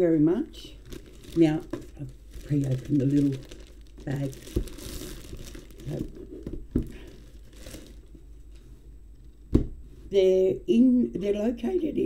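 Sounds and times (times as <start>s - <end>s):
plastic satchel crinkling: 0.7s - 8.2s.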